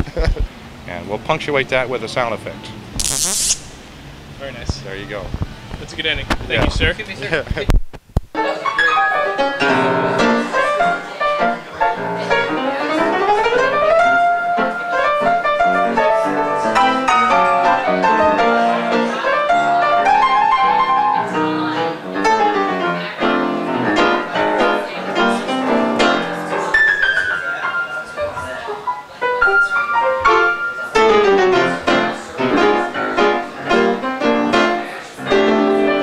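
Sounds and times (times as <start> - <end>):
solo jazz piano: 8.3 - 36.0.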